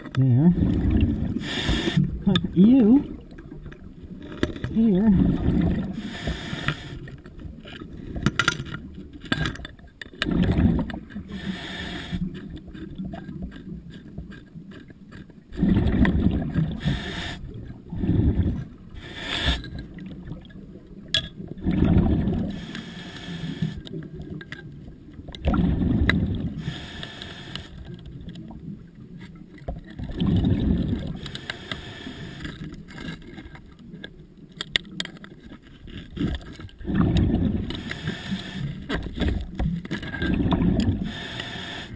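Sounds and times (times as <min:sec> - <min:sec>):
scuba exhaust bubbles rumbling: 0:00.0 - 0:09.3, 0:10.1 - 0:33.0, 0:36.1 - 0:41.9
underwater clicks and knocks: 0:02.0 - 0:05.9, 0:06.6 - 0:11.3, 0:12.3 - 0:16.8, 0:19.4 - 0:22.6, 0:23.8 - 0:26.5, 0:27.5 - 0:31.8, 0:32.4 - 0:38.1, 0:38.8 - 0:41.1.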